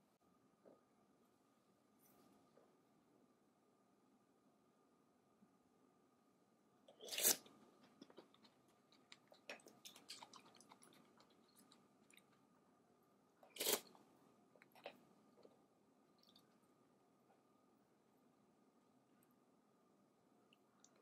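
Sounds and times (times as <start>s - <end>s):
soft chewing clicks: 7.8s - 12.4s.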